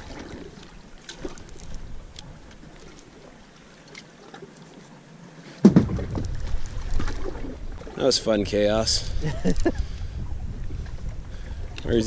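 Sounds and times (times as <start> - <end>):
faint open-water ambience: 0.0 - 12.0
loud bump: 5.6 - 6.3.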